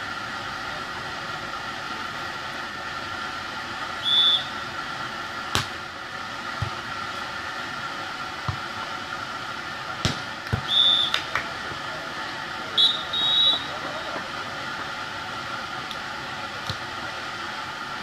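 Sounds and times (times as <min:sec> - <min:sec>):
outdoor hiss: 0:00.0 - 0:18.0
referee whistle blast: 0:04.0 - 0:04.6, 0:10.6 - 0:11.3, 0:12.8 - 0:13.7
hand slapping volleyball: 0:05.5 - 0:05.8, 0:10.0 - 0:11.5, 0:16.6 - 0:16.8
ball contact thuds: 0:10.0 - 0:10.7.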